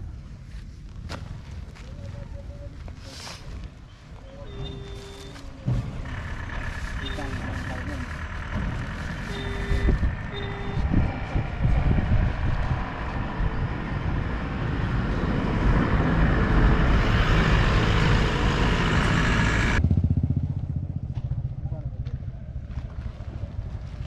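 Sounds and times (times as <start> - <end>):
short beeps: 4.4 - 5.4, 9.2 - 11.0
large vehicle engine running: 4.5 - 24.0.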